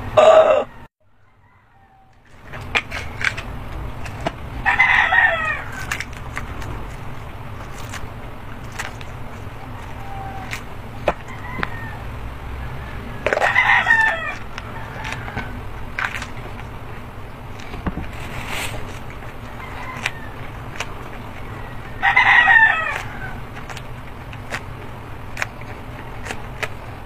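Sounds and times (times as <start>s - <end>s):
rooster crowing: 0.0s - 7.9s, 8.6s - 16.9s, 18.8s - 23.7s.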